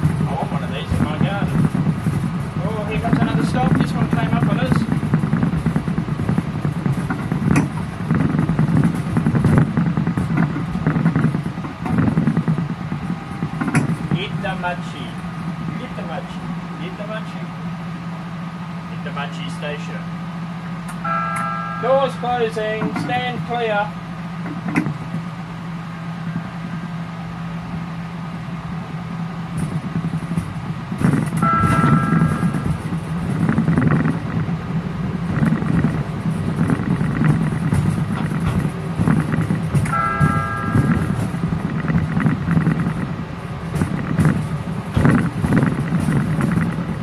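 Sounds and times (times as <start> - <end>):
wheels clicking on rails: 0.0 - 17.8, 20.6 - 47.0
electric train hum: 0.0 - 47.0
steady high tone: 21.0 - 23.5, 31.4 - 32.9, 39.8 - 42.0.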